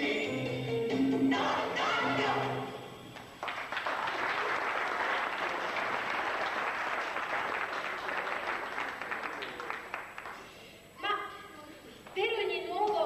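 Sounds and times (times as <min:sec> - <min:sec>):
audience applauding: 0:03.2 - 0:10.5.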